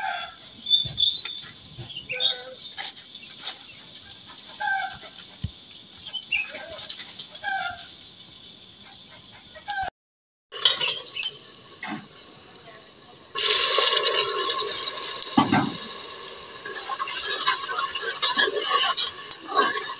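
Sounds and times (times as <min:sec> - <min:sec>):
chickens clucking: 0:00.0 - 0:08.1, 0:08.8 - 0:09.9, 0:16.6 - 0:19.9
small birds chirping: 0:00.6 - 0:09.9, 0:10.8 - 0:11.4.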